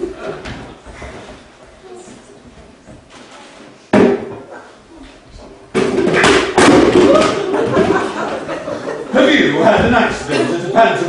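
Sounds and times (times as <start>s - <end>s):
loud voices: 6.6s - 11.0s.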